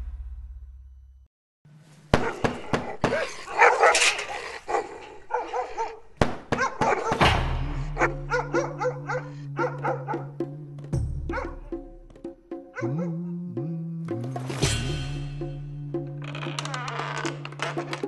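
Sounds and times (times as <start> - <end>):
dog barking: 2.2 - 10.4, 11.3 - 11.8, 12.7 - 13.3.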